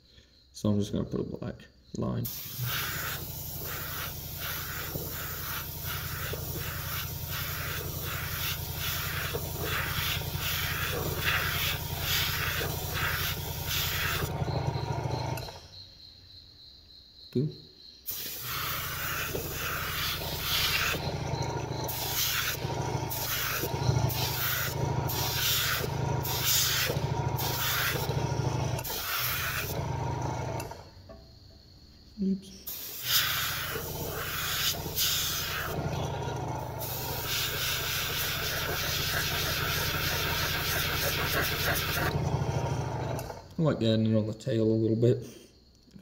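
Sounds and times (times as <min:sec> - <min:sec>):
airbrush hissing: 0:02.2 - 0:15.4, 0:18.0 - 0:29.8, 0:32.6 - 0:43.3
air compressor humming: 0:02.2 - 0:15.7, 0:18.1 - 0:30.9, 0:32.7 - 0:43.6.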